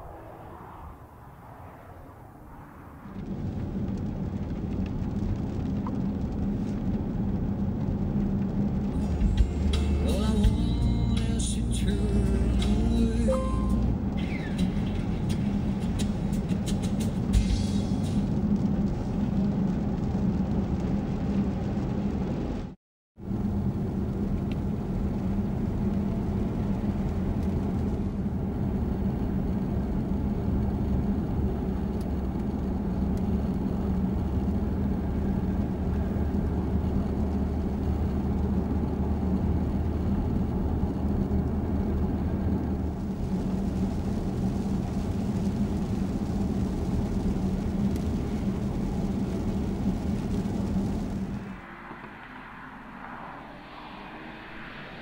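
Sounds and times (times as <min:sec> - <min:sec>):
low engine hum: 0:00.0 - 0:55.0
road rumble: 0:00.0 - 0:55.0.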